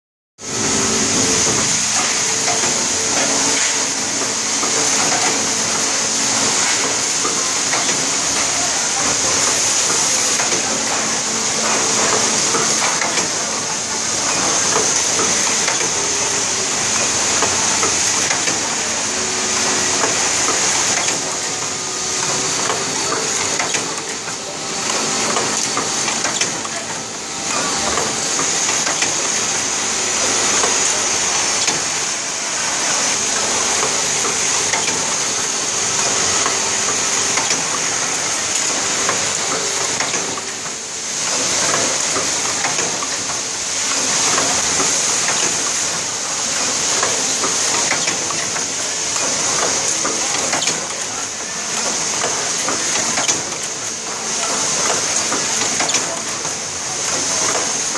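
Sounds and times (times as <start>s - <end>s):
dense mechanical noise: 0.4s - 57.9s
machine hissing: 0.4s - 57.9s.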